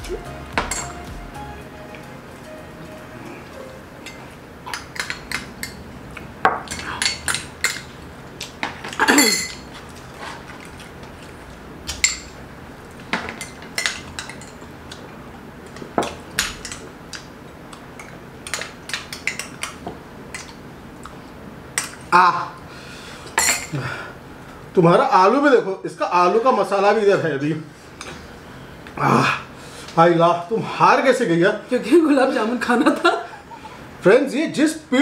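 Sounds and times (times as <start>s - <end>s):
spoons clinking on glass bowls: 0.6s - 1.0s, 4.0s - 5.8s, 8.9s - 9.7s.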